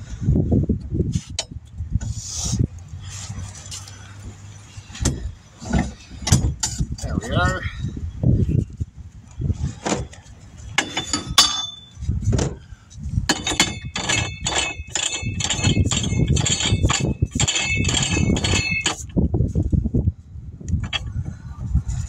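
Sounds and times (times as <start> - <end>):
knocks and clinks: 10.8 - 12.0, 13.3 - 19.1.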